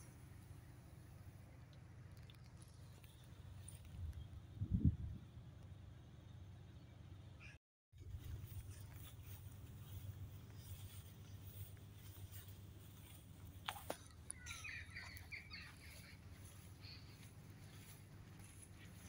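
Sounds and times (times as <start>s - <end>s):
bird chirping: 13.9s - 19.0s.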